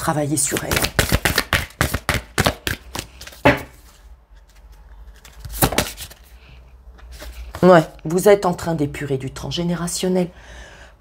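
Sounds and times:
cards being shuffled: 0.4s - 8.0s.

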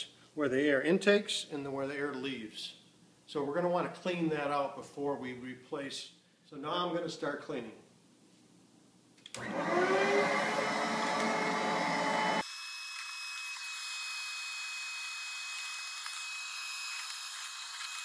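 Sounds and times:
vacuum cleaner motor whine: 9.4s - 18.0s
vacuum cleaner switch click: 10.7s - 12.4s.

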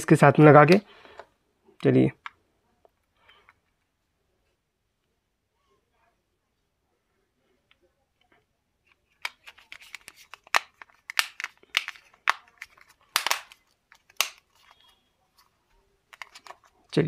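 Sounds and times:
plastic phone housing clicking: 9.0s - 14.8s, 16.1s - 16.6s.

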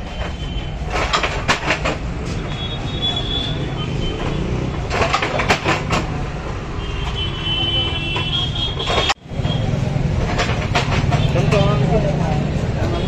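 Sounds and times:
traffic: 0.0s - 13.0s
crowd noise: 7.3s - 13.0s.

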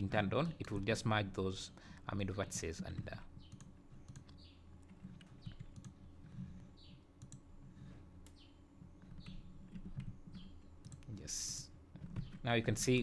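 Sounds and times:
low steady hum: 0.0s - 13.0s
keyboard and mouse clicks: 2.9s - 7.5s, 8.2s - 11.3s.

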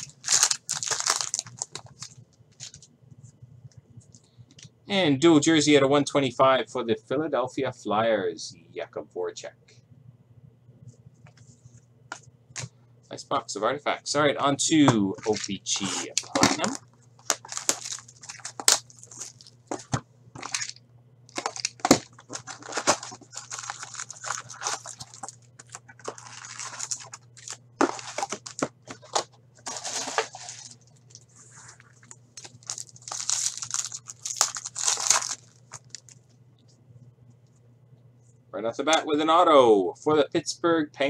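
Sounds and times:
foil packs crinkling and ripping: 0.0s - 2.8s, 15.2s - 31.2s, 32.4s - 36.2s
plastic wrap tearing: 0.0s - 2.8s, 15.2s - 19.8s, 20.4s - 31.2s, 32.4s - 36.2s.

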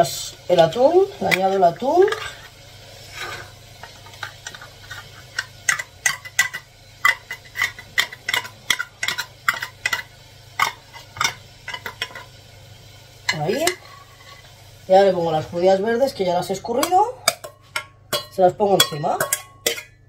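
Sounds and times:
metal fork clinking on tin and dish: 16.8s - 20.0s.

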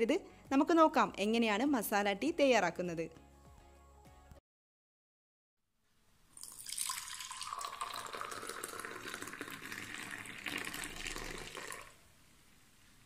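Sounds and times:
tea pouring into clay mug: 6.4s - 12.0s.

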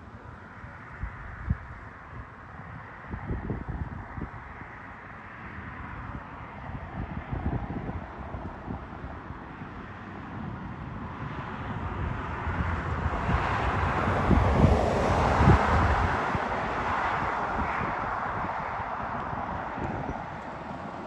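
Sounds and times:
wind buffeting microphone: 0.0s - 21.0s
truck passing by: 10.2s - 21.0s.

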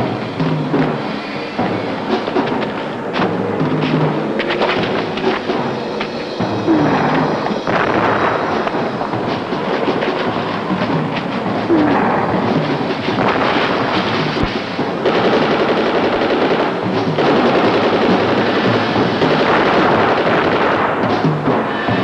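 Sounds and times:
music: 0.0s - 22.0s
explosions: 2.1s - 21.7s
rapid gunfire: 6.7s - 22.0s.

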